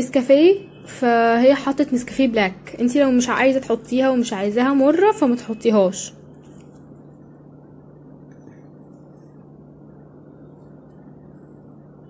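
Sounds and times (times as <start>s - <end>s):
low hum and hiss: 0.0s - 12.0s.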